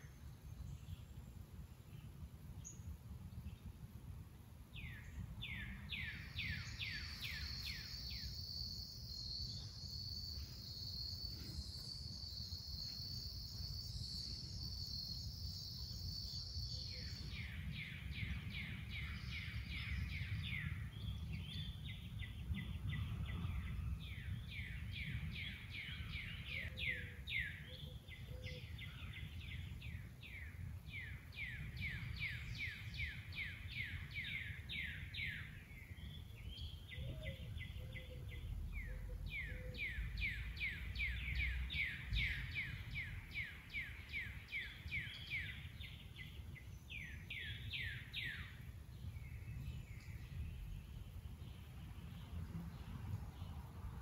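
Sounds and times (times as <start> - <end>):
constant low rumble: 16.6 - 54.0.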